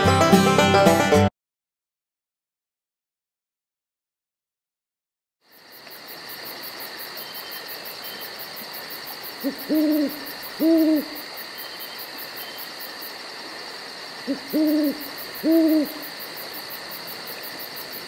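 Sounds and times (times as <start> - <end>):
steady hiss: 5.5 - 18.0
owl hooting: 9.4 - 12.7, 14.2 - 16.2.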